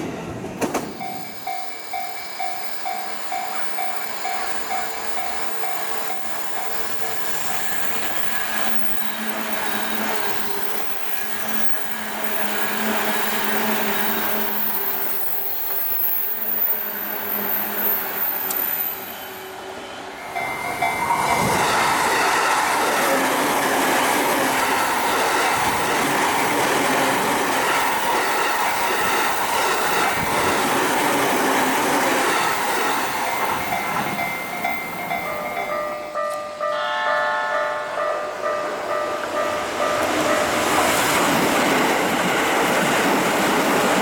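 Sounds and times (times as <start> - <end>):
electric train passing: 0.0 - 44.0
train wheels clacking over rail joints: 0.6 - 14.4.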